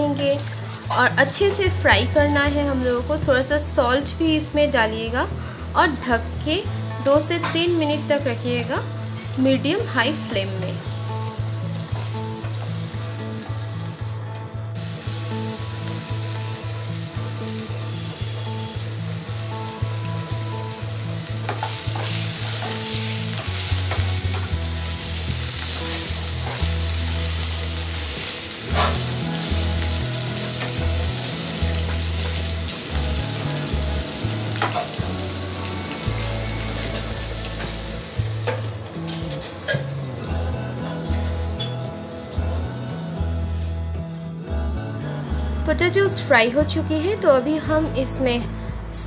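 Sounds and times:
potatoes sizzling in hot oil: 0:00.0 - 0:05.2, 0:05.9 - 0:14.1, 0:14.8 - 0:40.0.

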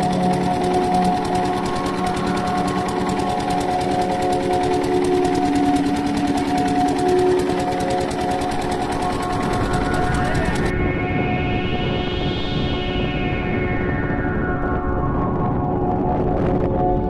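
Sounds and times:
diesel engine chugging: 0:00.0 - 0:10.7.

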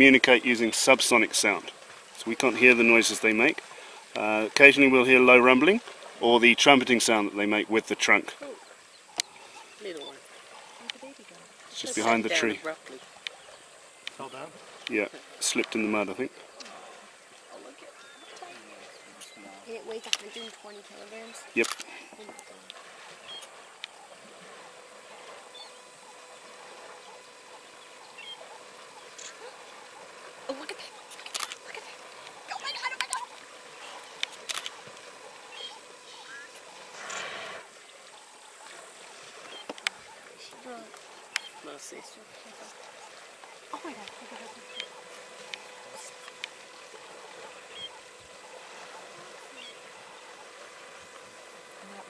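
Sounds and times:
faint steady hiss: 0:00.0 - 0:52.0
water sloshing and splashing: 0:00.0 - 0:52.0
bird chirps: 0:27.0 - 0:29.8, 0:34.8 - 0:36.8, 0:47.7 - 0:48.0, 0:49.5 - 0:49.9.

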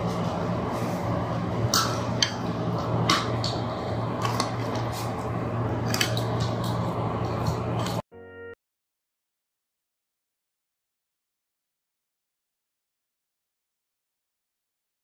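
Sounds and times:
brief tone: 0:08.1 - 0:08.6.

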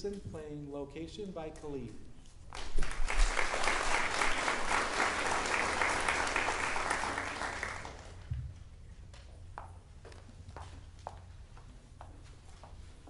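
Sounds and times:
audience applauding: 0:02.5 - 0:08.3.

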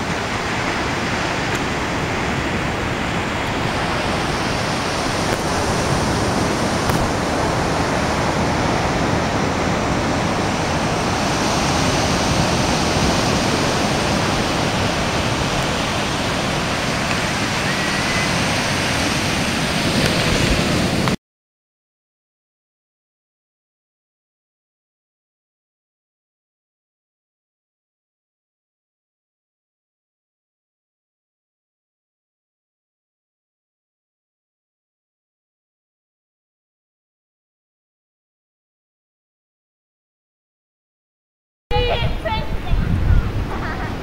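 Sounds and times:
steady rushing noise: 0:00.0 - 0:21.2, 0:41.7 - 0:44.0.

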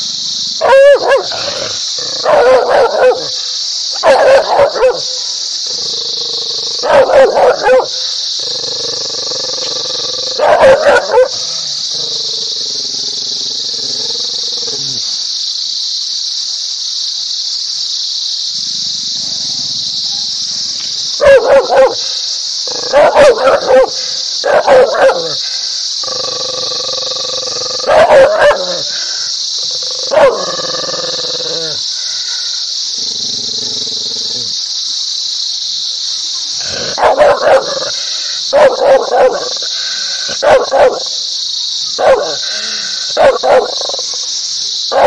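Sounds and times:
high-pitched hiss: 0:00.0 - 0:45.0
insect chorus drone: 0:00.0 - 0:45.0
dog barking: 0:00.6 - 0:01.5, 0:02.1 - 0:03.4, 0:04.0 - 0:05.2, 0:06.8 - 0:08.0, 0:10.4 - 0:11.4, 0:21.2 - 0:25.4, 0:27.8 - 0:28.9, 0:30.1 - 0:30.5, 0:36.9 - 0:39.7, 0:40.3 - 0:41.2, 0:42.0 - 0:42.5, 0:43.2 - 0:44.0.

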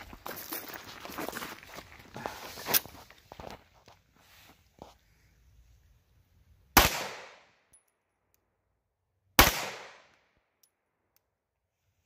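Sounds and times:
pistol gunshots with echo: 0:06.8 - 0:07.5, 0:09.4 - 0:10.1.

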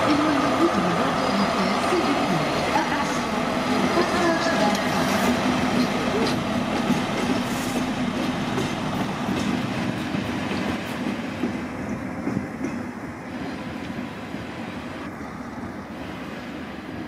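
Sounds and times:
diesel locomotive engine drone: 0:00.0 - 0:17.0.

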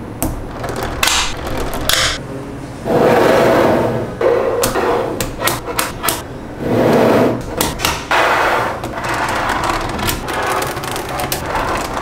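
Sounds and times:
balls rattling and scraping: 0:00.2 - 0:02.2, 0:04.4 - 0:12.0
magnetic balls clicking: 0:00.2 - 0:02.2, 0:08.8 - 0:12.0.

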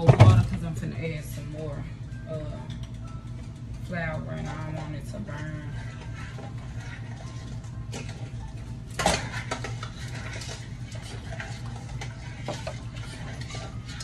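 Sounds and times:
steady low hum: 0:00.0 - 0:14.0
utensil scraping metal pot: 0:03.9 - 0:14.0.

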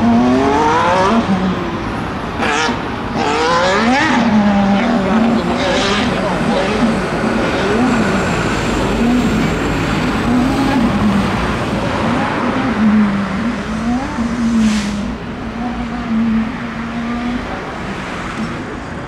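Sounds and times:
race car engine at low revs: 0:00.0 - 0:19.0.

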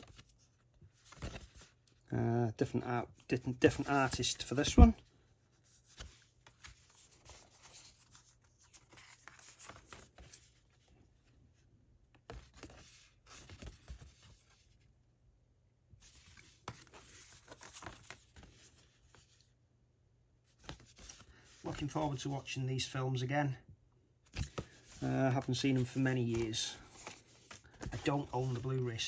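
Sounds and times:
paper cards rustling and tapping: 0:00.0 - 0:01.9, 0:05.8 - 0:10.8, 0:12.1 - 0:14.7, 0:16.0 - 0:19.4, 0:20.5 - 0:22.3, 0:24.3 - 0:29.0.

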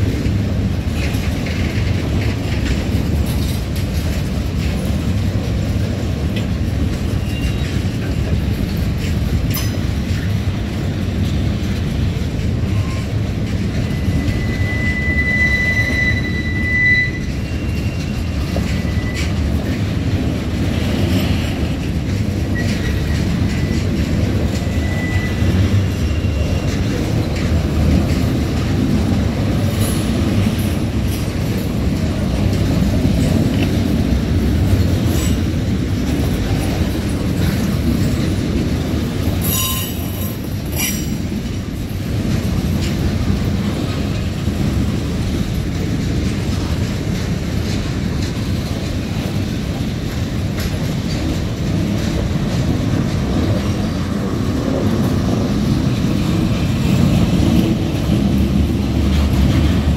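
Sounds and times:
train wheels rumbling on rails: 0:00.0 - 0:59.9
wheels clickety-clack: 0:00.0 - 0:59.9
wheel squeals: 0:07.0 - 0:08.0, 0:12.6 - 0:19.8, 0:22.4 - 0:28.4, 0:39.4 - 0:41.3.

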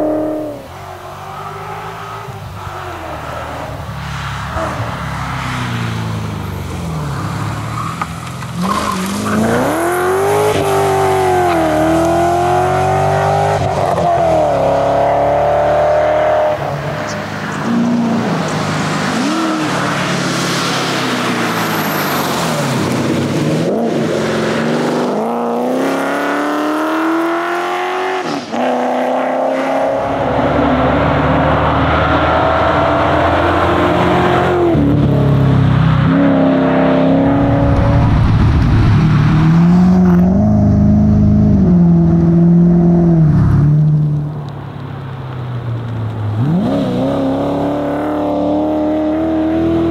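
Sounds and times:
car engine accelerating hard: 0:04.4 - 0:44.2, 0:46.3 - 0:49.9.

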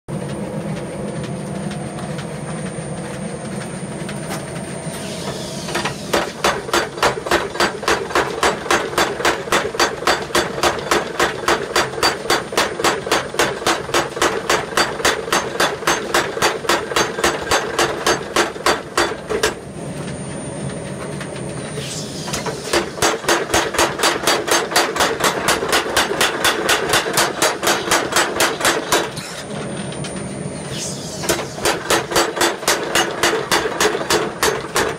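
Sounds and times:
power hammer mechanical hum: 0:00.2 - 0:34.9
power hammer ram striking: 0:05.7 - 0:19.6, 0:22.3 - 0:29.4, 0:31.2 - 0:34.9.

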